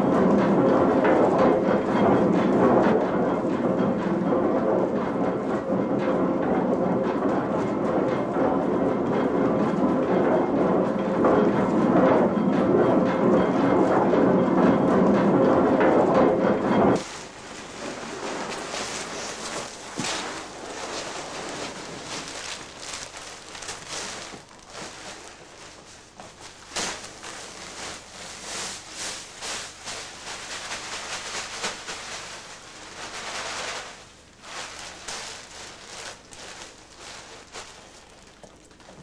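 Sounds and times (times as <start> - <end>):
loose contents sliding onto a heap: 17.0 - 38.9
paper sacks rustling and crackling: 17.0 - 39.0.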